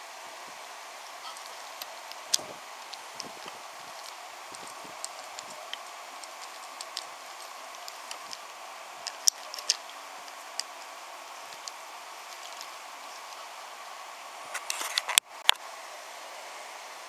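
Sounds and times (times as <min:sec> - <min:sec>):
steady background hiss: 0:00.0 - 0:17.0
toy train clacking on track: 0:01.3 - 0:10.9.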